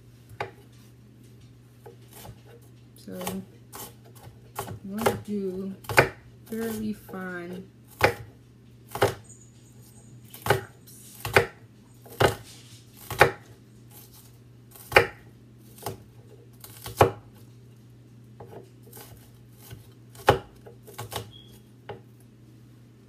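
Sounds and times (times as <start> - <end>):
knife chopping on wooden board: 0.3 - 0.6, 3.2 - 6.9, 7.9 - 9.2, 10.3 - 12.4, 13.0 - 17.4, 18.4 - 22.0.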